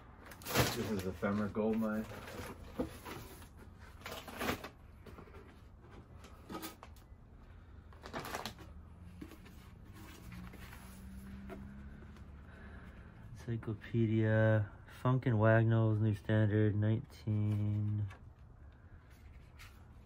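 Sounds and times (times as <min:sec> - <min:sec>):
papers rustling: 0:00.3 - 0:07.1, 0:07.8 - 0:11.9.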